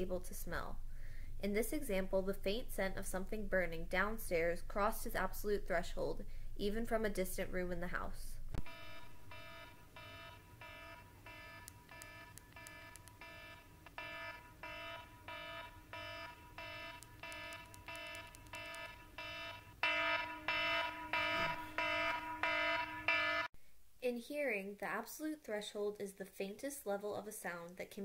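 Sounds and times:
alarm beeping: 0:08.6 - 0:23.5.

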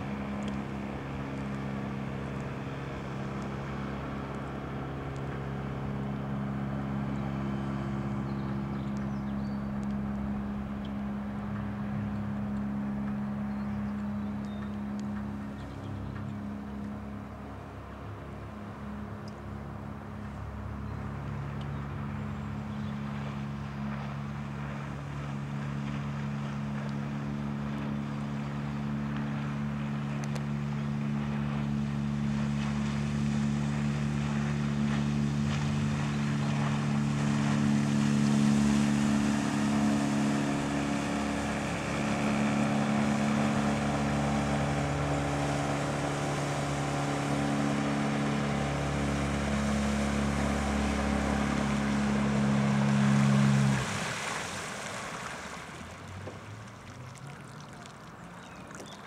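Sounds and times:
outboard motor hum: 0:00.0 - 0:59.0
water hissing from bow wave: 0:32.1 - 0:59.0.

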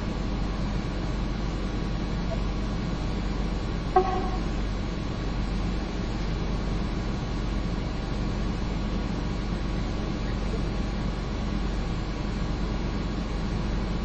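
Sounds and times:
low rumble: 0:04.0 - 0:05.0.

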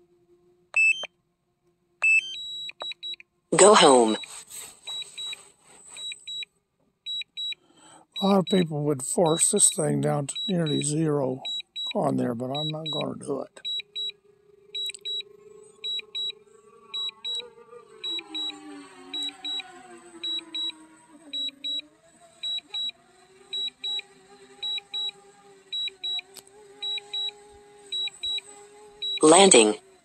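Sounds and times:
short high beeps: 0:00.8 - 0:01.1, 0:02.0 - 0:04.3
wavering hum gliding in pitch: 0:12.4 - 0:29.8.

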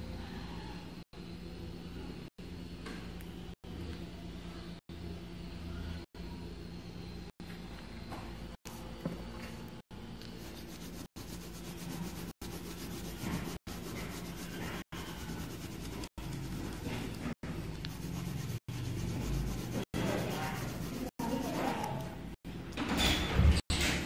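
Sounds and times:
low steady hum: 0:00.0 - 0:22.8
pencil scratching on paper: 0:10.3 - 0:22.2.

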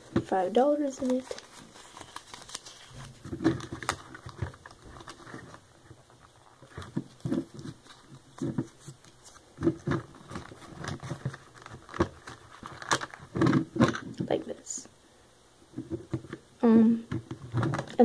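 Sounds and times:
paper rustling: 0:00.1 - 0:13.9.

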